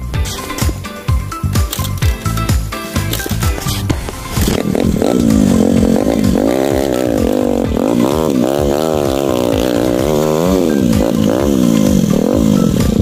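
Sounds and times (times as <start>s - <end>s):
motorcycle engine revving: 3.2s - 13.0s.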